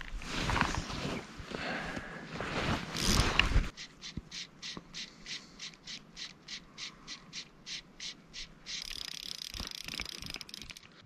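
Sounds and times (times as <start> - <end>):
fishing reel cranking: 3.0 - 3.2, 3.8 - 10.9.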